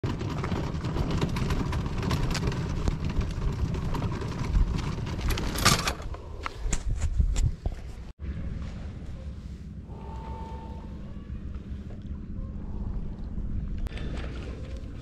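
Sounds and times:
wind buffeting microphone: 0.1s - 8.1s.

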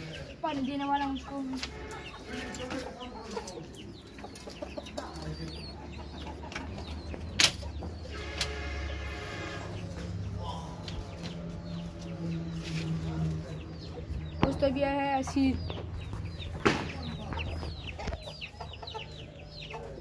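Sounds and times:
chickens clucking: 0.0s - 20.0s
drawn-out chicken call: 7.8s - 10.1s.

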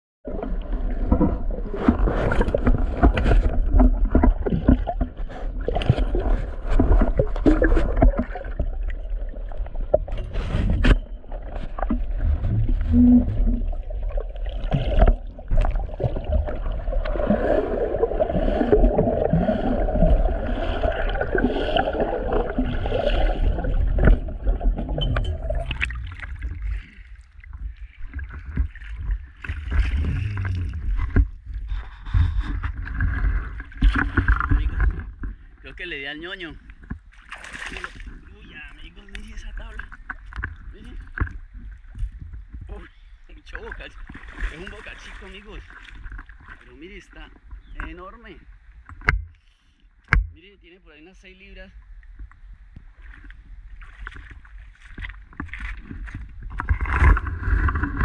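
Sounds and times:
water splashing and sloshing: 0.3s - 50.6s, 51.2s - 58.0s
steady low rumble: 9.0s - 14.4s.

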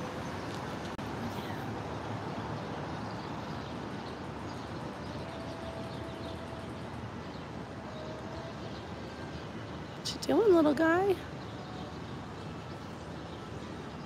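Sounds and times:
distant street traffic: 0.0s - 14.0s.

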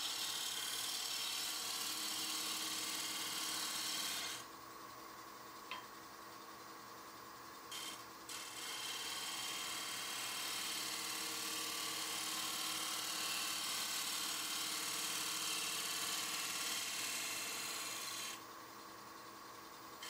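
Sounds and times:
gouge shaving wood: 0.0s - 4.4s, 7.8s - 18.4s
lathe running hum: 0.0s - 4.5s, 7.7s - 18.4s.

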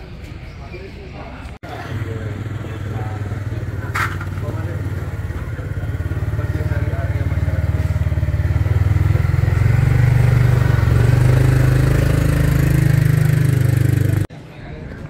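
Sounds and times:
vehicle engine running: 1.6s - 14.3s.

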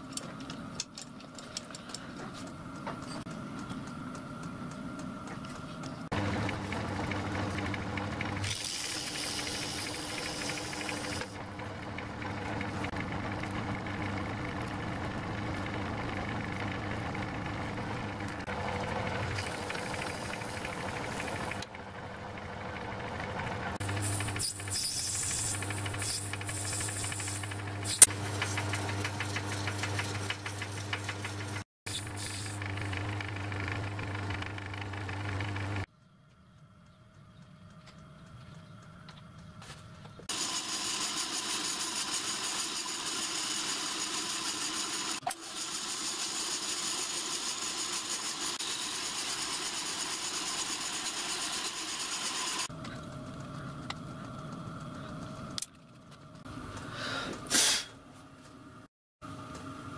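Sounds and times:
hand tool scraping spinning metal: 23.9s - 32.7s, 40.4s - 52.7s.

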